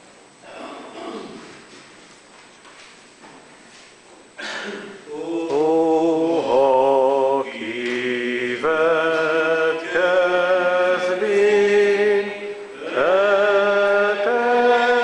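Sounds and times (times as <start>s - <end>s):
congregation singing a hymn: 5.1s - 15.0s.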